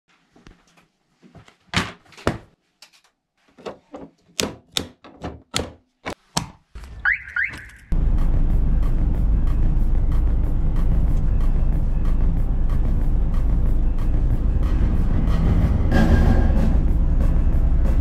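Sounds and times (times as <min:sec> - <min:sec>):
car road and engine noise: 0:06.7 - 0:18.0.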